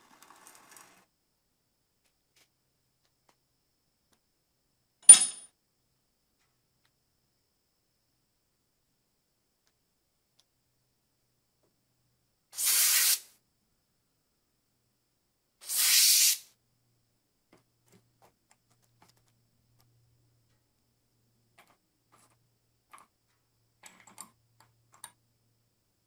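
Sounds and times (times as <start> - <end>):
spray can hissing: 12.6 - 13.3, 15.6 - 16.5.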